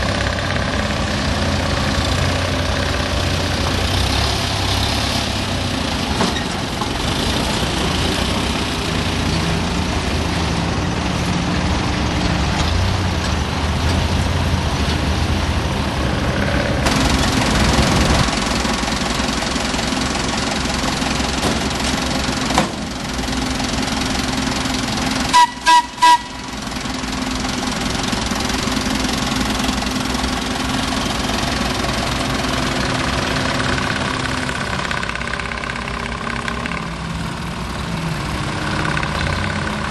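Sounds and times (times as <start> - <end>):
locomotive engine running: 0.0 - 39.9
locomotive horn toots: 25.3 - 26.7.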